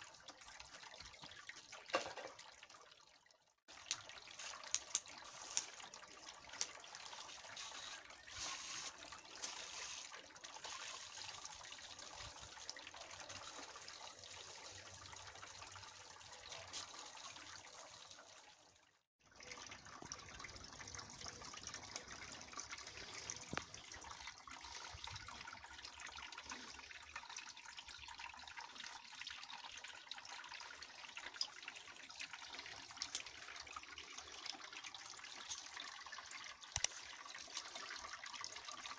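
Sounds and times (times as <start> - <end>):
water trickling: 0.0 - 38.9
hose spraying water on soil: 4.2 - 11.9.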